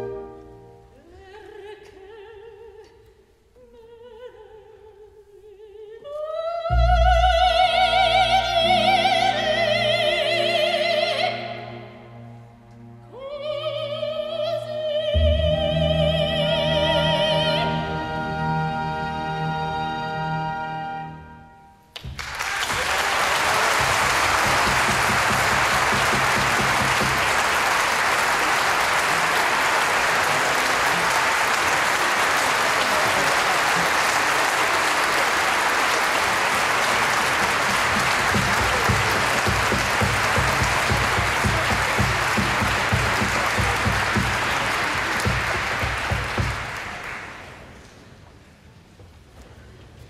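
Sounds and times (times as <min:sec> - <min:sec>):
audience applauding: 0:22.0 - 0:47.8.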